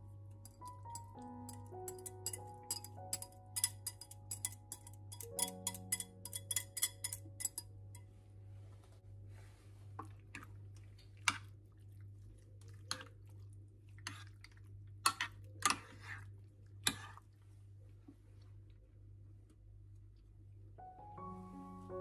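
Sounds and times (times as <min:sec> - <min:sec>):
fork clicking against dish: 0:00.4 - 0:07.6
soft wet squishing: 0:09.3 - 0:20.6.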